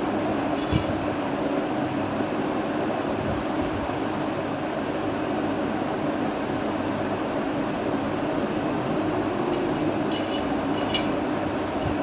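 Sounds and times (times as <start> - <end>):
steady rumbling hum: 0.0 - 12.0.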